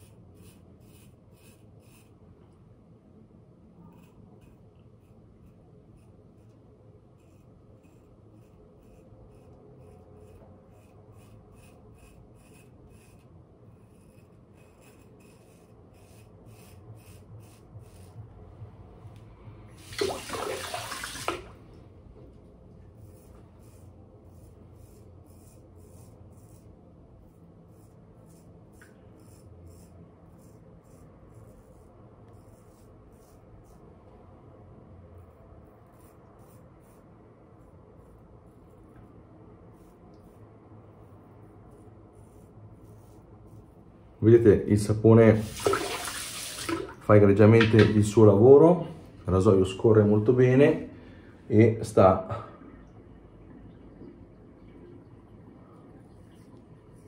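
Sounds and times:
razor scraping stubble: 3.9 - 18.3
tap running: 19.9 - 21.6, 45.5 - 47.0.

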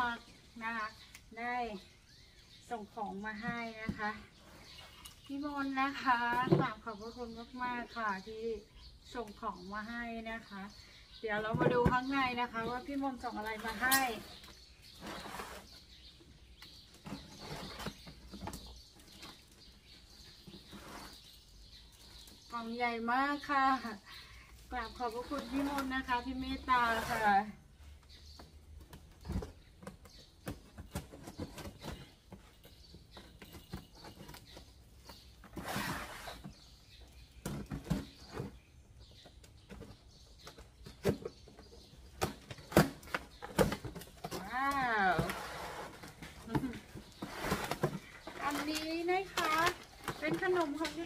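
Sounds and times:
cardboard box scraping rustle: 13.6 - 16.2, 20.1 - 21.4, 26.6 - 27.5, 33.6 - 36.9, 43.0 - 51.0.

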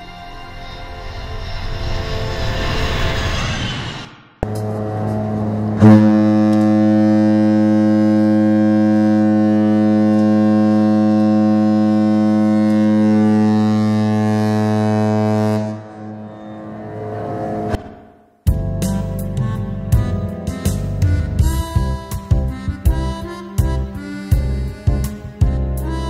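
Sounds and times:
ship horn deep blast: 4.4 - 17.9, 18.9 - 26.0.

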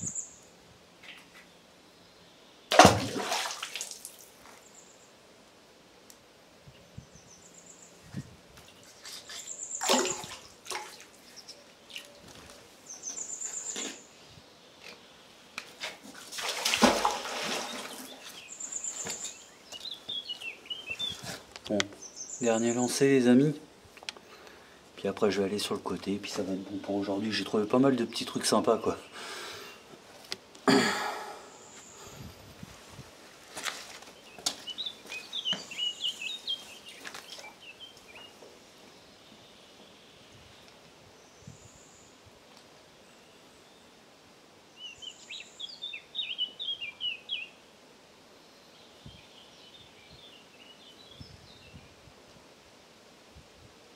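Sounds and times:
water splashing: 2.7 - 4.4, 8.9 - 12.1, 16.1 - 18.3.

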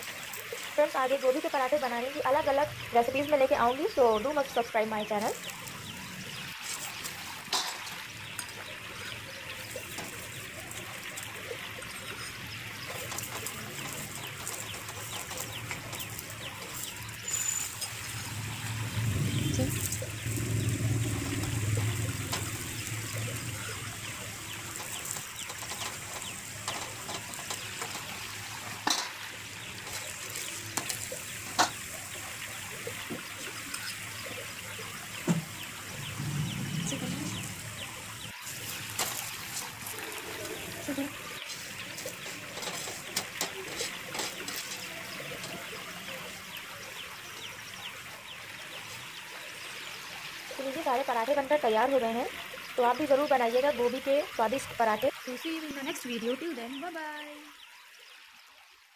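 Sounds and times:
flatbread sizzling in oil: 0.0 - 57.3
low hum: 17.5 - 26.3.

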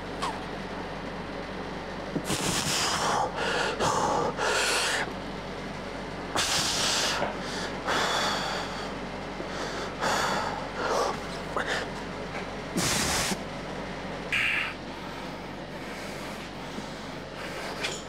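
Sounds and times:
steady low hum: 0.0 - 18.0
man breathing hard: 2.2 - 5.1, 6.4 - 12.0, 12.8 - 13.4, 14.4 - 18.0.

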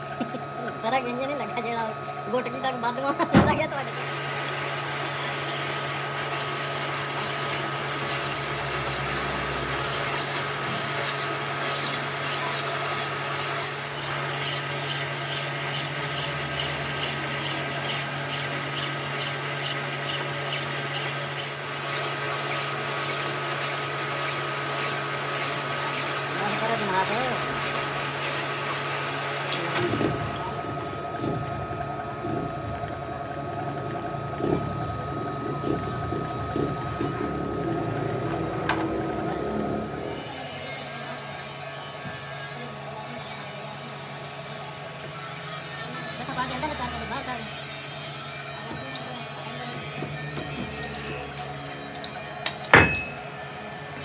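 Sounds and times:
lathe motor hum: 0.0 - 54.0
hand file rasping on metal: 5.4 - 28.8.

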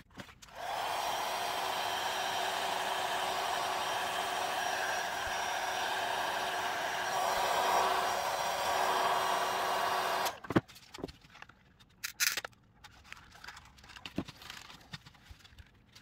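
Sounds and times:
heat gun blowing: 0.5 - 10.4.

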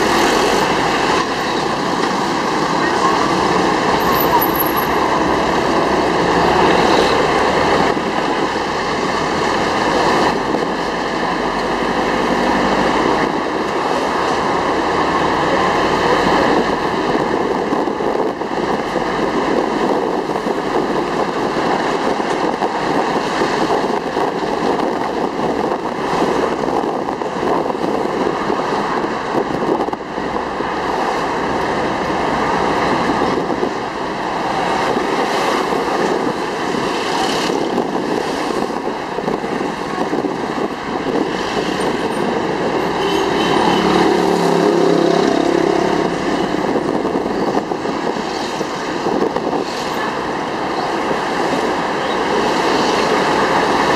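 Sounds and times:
vehicle engine and road noise: 0.0 - 53.9
wind on microphone: 16.1 - 53.9.

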